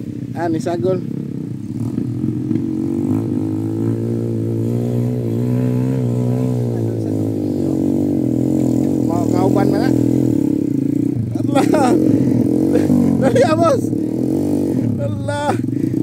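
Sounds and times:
dirt bike engine labouring: 0.0s - 16.0s.

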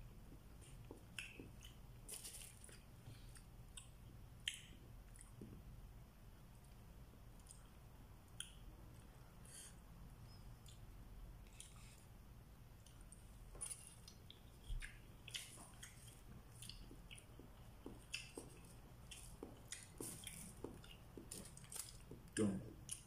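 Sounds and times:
person chewing: 0.3s - 5.6s, 10.6s - 12.1s, 12.7s - 23.0s.

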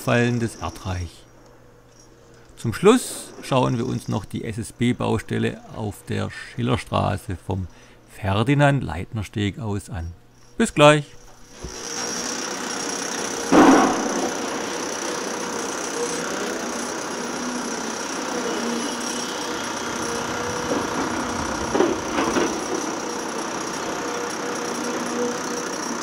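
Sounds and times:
construction machinery running: 11.3s - 26.0s
loud knocks: 13.4s - 14.6s, 19.8s - 23.8s.

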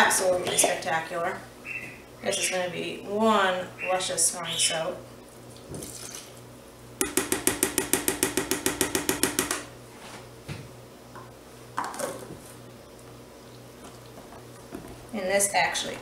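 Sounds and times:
knocks on plastic bowl: 7.0s - 9.6s.

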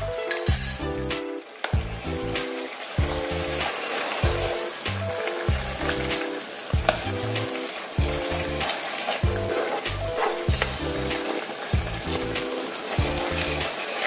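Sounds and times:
background music with steady beat: 0.0s - 14.0s
sauce bubbling and sizzling in a pan: 0.8s - 14.0s
wooden spatula stirring: 3.0s - 14.0s.

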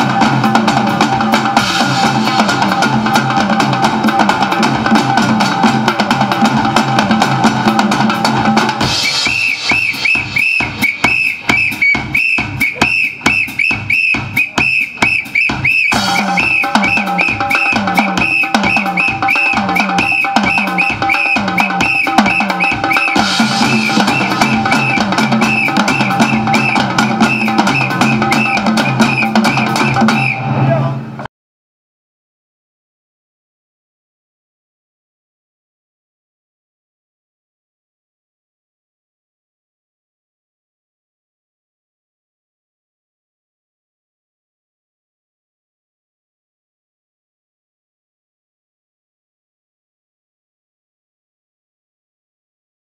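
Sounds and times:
drum kit beat: 0.0s - 30.6s
band music: 0.0s - 31.3s
high repeating melody: 8.8s - 30.3s.

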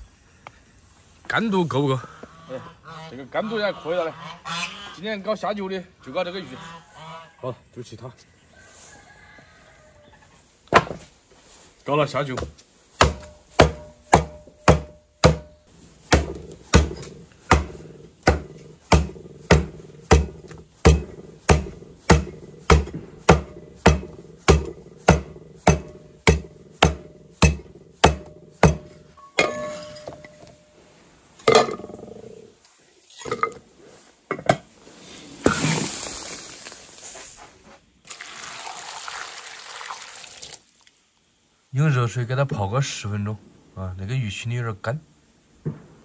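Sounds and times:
cleaver chopping on wooden block: 10.7s - 11.0s, 12.4s - 29.6s.

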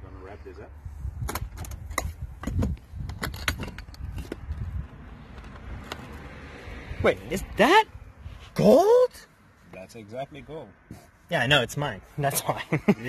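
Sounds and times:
wind rumble on microphone: 0.0s - 5.9s.

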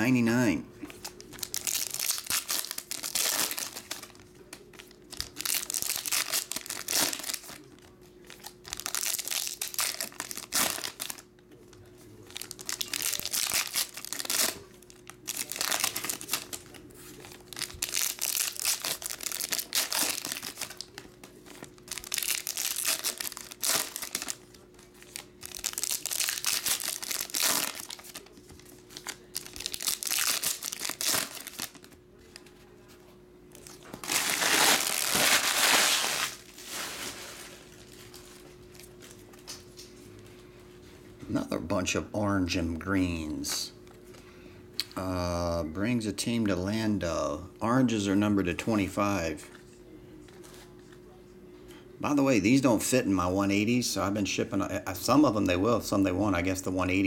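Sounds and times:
foil wrappers tearing and crinkling: 0.9s - 11.2s, 12.2s - 32.0s, 33.6s - 38.4s.

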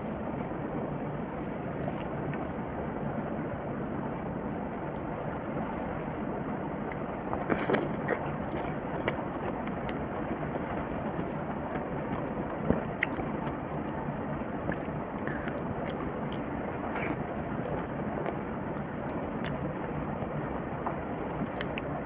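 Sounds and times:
wet mouth clicks and smacks: 13.0s - 13.2s.

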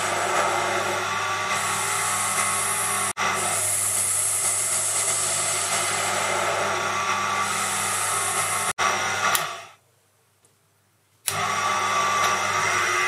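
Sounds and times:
lathe motor hum: 0.0s - 9.7s.

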